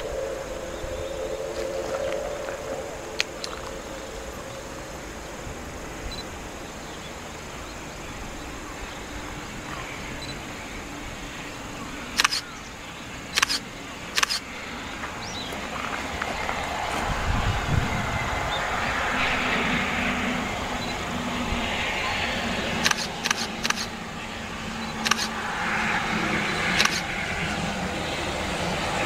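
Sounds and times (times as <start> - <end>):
outdoor ambience: 0.0 - 29.0
camera shutter clicks: 12.2 - 12.4, 13.4 - 13.6, 14.2 - 14.4, 22.8 - 23.9, 25.0 - 25.4, 26.8 - 27.1.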